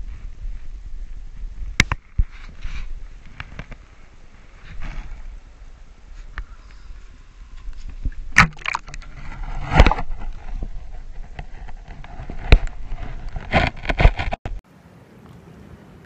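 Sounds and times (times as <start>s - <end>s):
rustling noise: 0.0s - 6.4s, 7.0s - 14.6s
knocks and scrapes: 1.8s - 5.4s, 7.6s - 14.6s.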